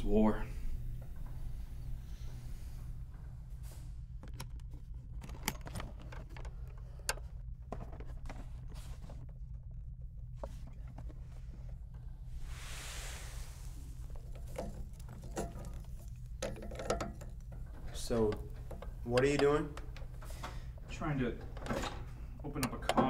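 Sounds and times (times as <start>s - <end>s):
steady low hum: 0.0s - 23.0s
plastic toolbox clicks and rattles: 4.2s - 9.4s
short hiss: 12.4s - 13.9s.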